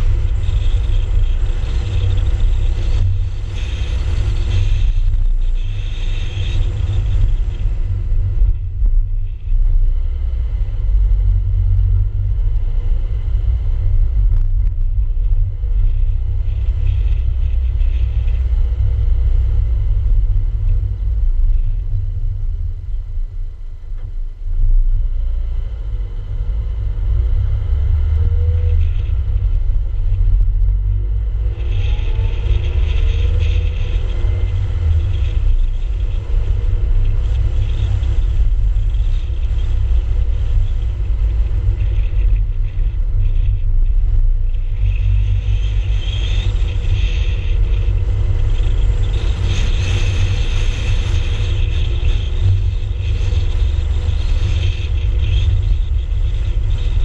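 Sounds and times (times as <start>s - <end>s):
road hiss: 0.0s - 22.4s
road and engine noise: 0.0s - 57.0s
wind rumble on microphone: 0.0s - 57.0s.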